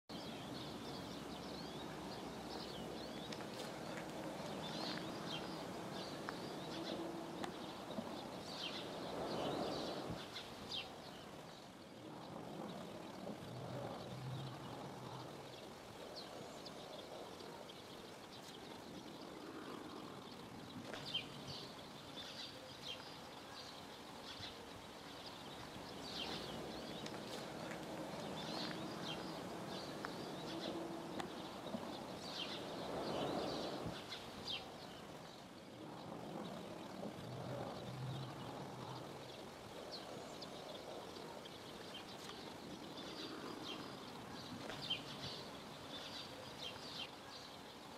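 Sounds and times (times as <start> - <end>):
faint low rumble: 0.1 - 47.0
small birds chirping: 0.1 - 47.9.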